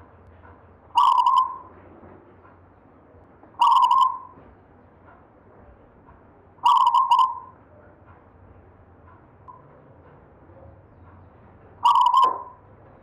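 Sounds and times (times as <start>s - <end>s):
dove cooing: 6.7s - 7.4s, 11.8s - 12.6s.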